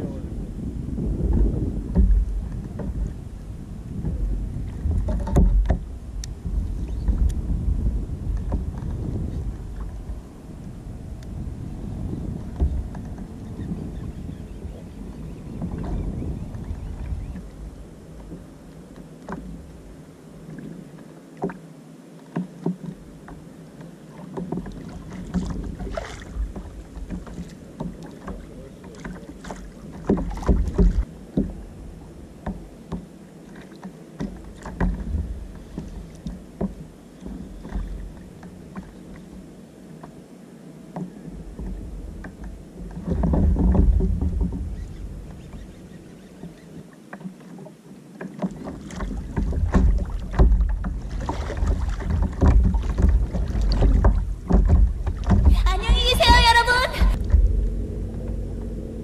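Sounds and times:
waves lapping against plastic hull: 0:00.0 - 0:59.0
low rumbles: 0:49.4 - 0:59.0.

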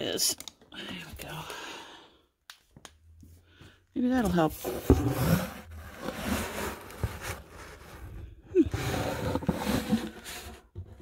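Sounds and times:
rummaging through objects: 0:04.1 - 0:11.0.

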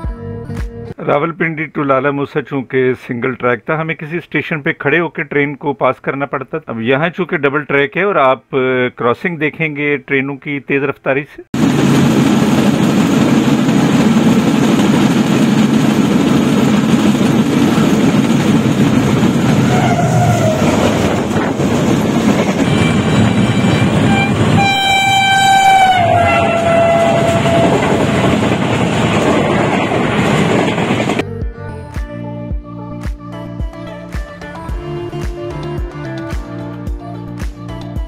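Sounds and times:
train rumbling past: 0:11.6 - 0:31.2
train horn blast: 0:19.6 - 0:21.0, 0:22.6 - 0:28.6.

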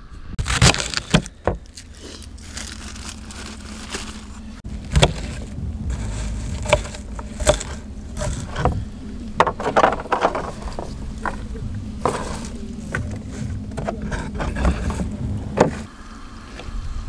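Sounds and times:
low hum and hiss: 0:00.0 - 0:17.0
sharp knocks and clatters: 0:09.4 - 0:15.9.

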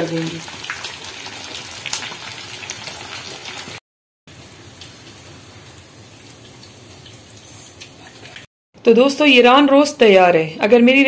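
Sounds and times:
hot oil sizzling and crackling: 0:00.0 - 0:08.5.

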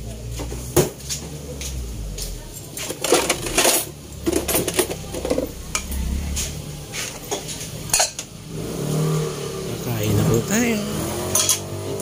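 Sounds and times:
utensils clinking on dishes: 0:02.4 - 0:05.9, 0:06.9 - 0:08.4, 0:11.3 - 0:12.0
steady low hum: 0:04.0 - 0:08.7.

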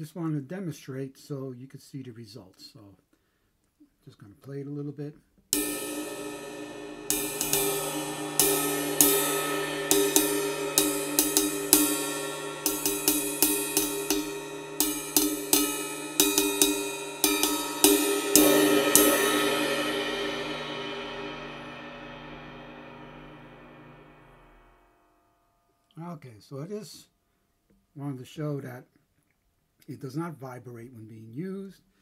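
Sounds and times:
cymbal struck with drumstick: 0:05.6 - 0:24.8.

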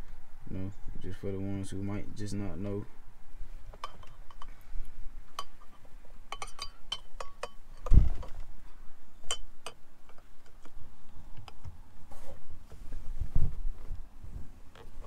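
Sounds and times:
light metallic clicks and clinks: 0:03.8 - 0:04.6, 0:05.3 - 0:07.9, 0:09.2 - 0:10.6.

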